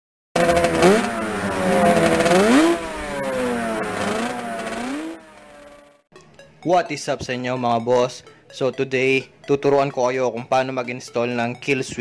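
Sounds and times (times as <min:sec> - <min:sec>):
motorcycle engine revving: 0:00.4 - 0:06.1.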